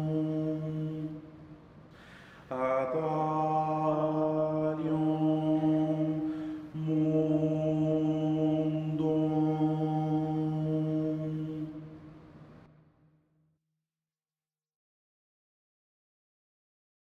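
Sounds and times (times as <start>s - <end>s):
slow chant-like drone music: 0.0s - 1.7s, 2.3s - 12.4s
steady low tone: 0.0s - 13.1s.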